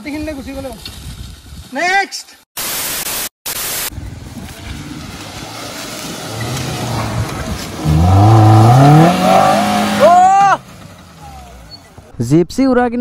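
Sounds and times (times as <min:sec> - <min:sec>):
vehicle engine labouring and revving: 0:03.9 - 0:12.1.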